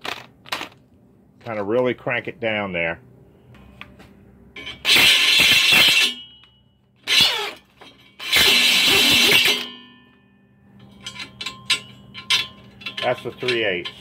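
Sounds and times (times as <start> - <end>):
drill grinding steel: 4.8 - 6.1, 7.0 - 7.6, 8.2 - 9.6.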